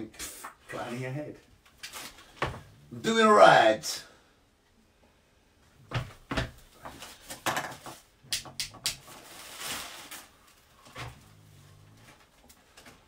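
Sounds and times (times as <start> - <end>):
objects knocking and clattering: 5.9 - 9.1.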